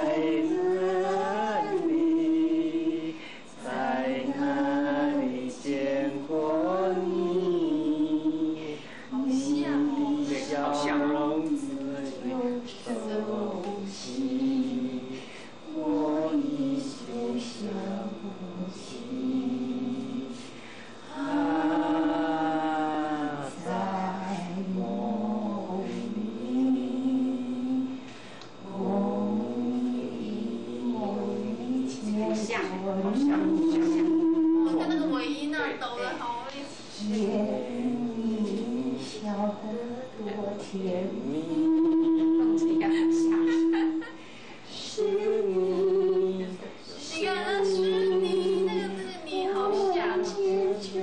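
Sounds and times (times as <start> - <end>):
woman singing: 0.0 - 3.0, 9.2 - 14.8, 44.9 - 51.0
people singing together: 0.0 - 51.0.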